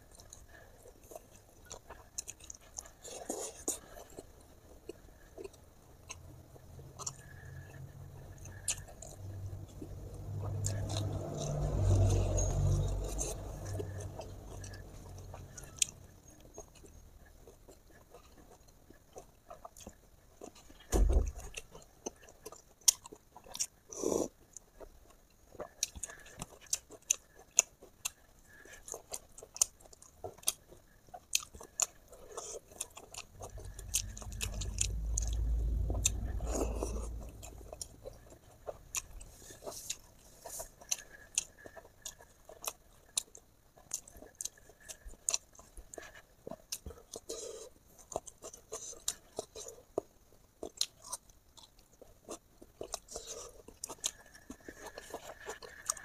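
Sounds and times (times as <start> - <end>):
person chewing and biting: 0.0 - 6.3, 6.9 - 56.0
low rumble: 33.3 - 38.4.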